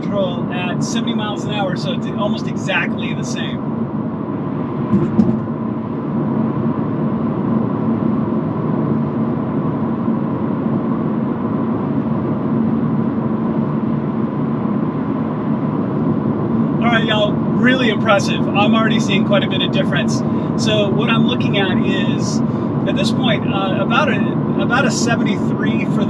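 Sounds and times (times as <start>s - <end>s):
road and tyre noise in car cabin: 0.0s - 26.0s.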